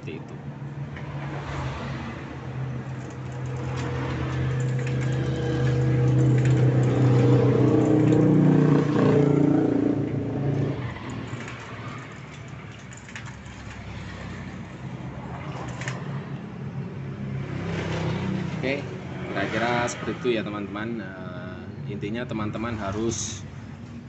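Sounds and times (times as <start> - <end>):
engine running: 2.2 - 17.6.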